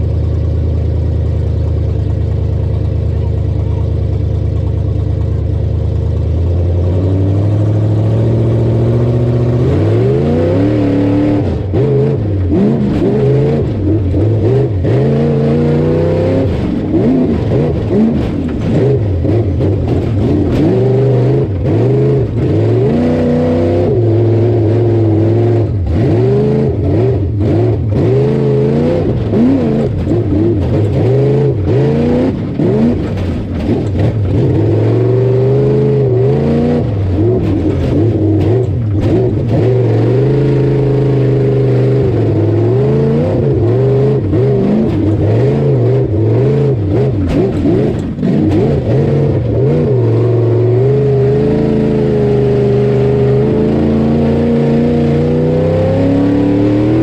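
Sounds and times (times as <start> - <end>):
race car engine revving: 5.1 - 57.0.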